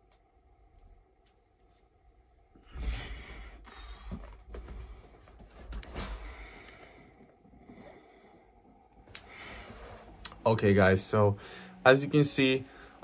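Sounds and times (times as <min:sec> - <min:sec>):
person breathing hard: 0:02.5 - 0:10.1, 0:11.4 - 0:11.8.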